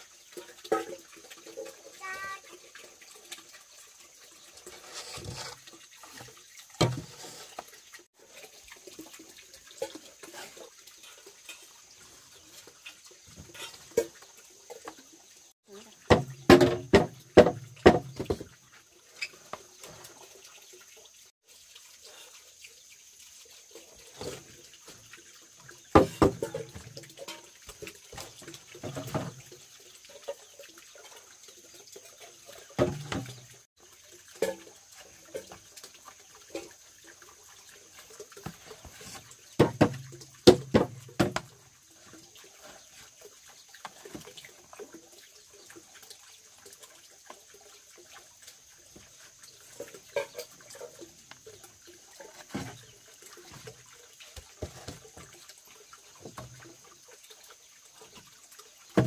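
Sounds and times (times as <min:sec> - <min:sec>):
water splashing and sloshing: 0:00.0 - 0:59.0
knocks: 0:16.1 - 0:18.4.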